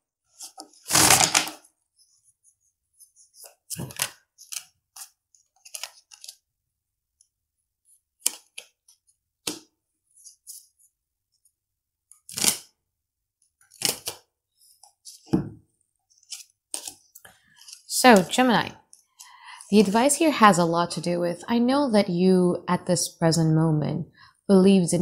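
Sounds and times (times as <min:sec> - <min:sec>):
cards being shuffled: 0:00.4 - 0:01.6, 0:03.3 - 0:06.4, 0:08.2 - 0:10.7, 0:13.7 - 0:15.3, 0:16.2 - 0:18.3.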